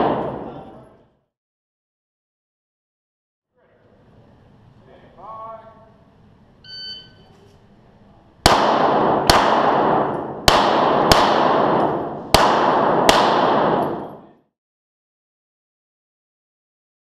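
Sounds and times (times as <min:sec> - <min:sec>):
pistol shots echoing: 0:00.0 - 0:00.9, 0:08.4 - 0:14.4
shot timer beep: 0:06.7 - 0:07.3.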